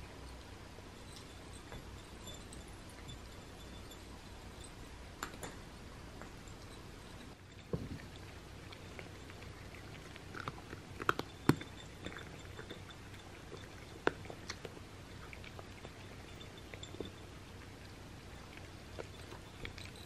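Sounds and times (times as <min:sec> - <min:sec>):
cats crunching dry kibble: 0:07.5 - 0:20.0.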